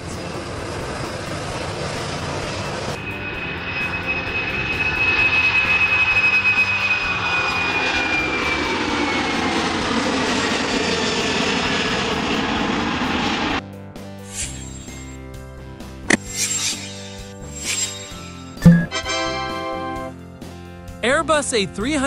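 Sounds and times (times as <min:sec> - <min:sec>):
high steady jet whine: 0:00.0 - 0:13.6, 0:14.2 - 0:15.3, 0:16.1 - 0:20.2
jet engines roaring at takeoff: 0:00.0 - 0:13.6.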